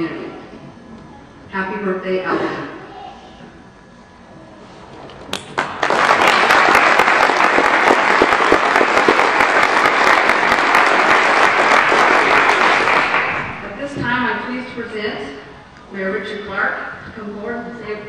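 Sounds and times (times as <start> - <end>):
audience applauding: 5.3 - 13.8.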